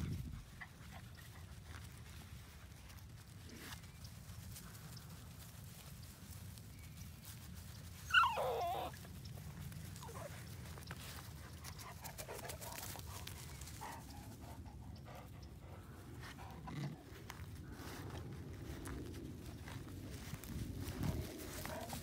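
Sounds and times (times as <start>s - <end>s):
dog whining: 8.1s - 9.0s.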